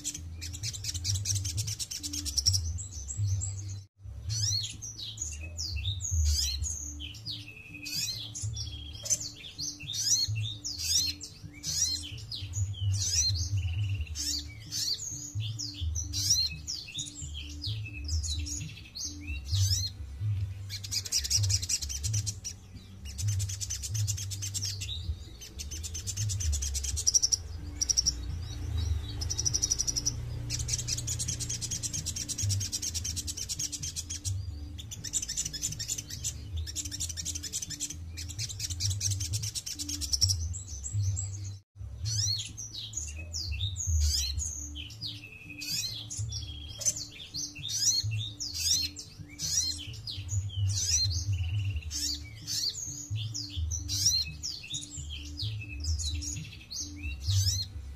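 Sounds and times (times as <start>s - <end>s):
songbird trilling: 20.6s - 41.1s, 42.1s - 57.8s
bird chirps and whistles: 43.2s - 57.7s.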